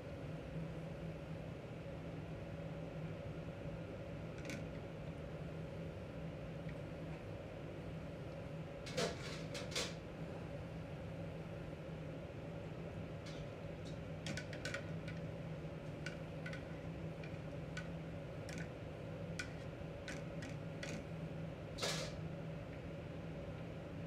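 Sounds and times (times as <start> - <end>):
mechanical hum: 0.0 - 24.0.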